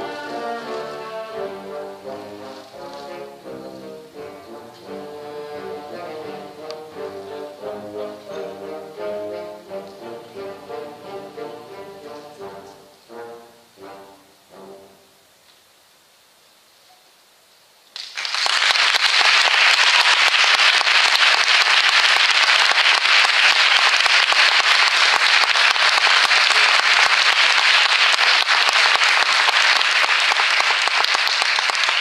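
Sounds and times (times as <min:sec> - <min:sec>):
crowd applauding: 0:18.0 - 0:32.0.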